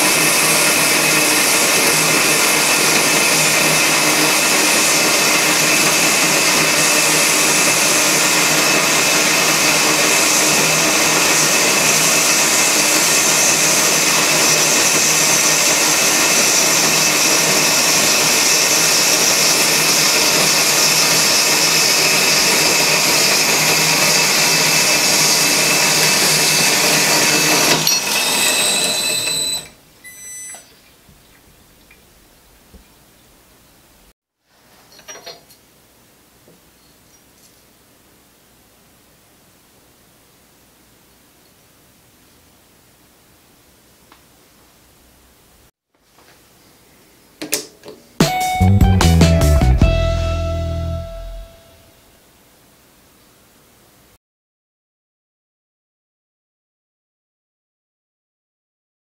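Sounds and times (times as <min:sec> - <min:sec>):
bandsaw cutting metal: 0:00.0 - 0:29.8.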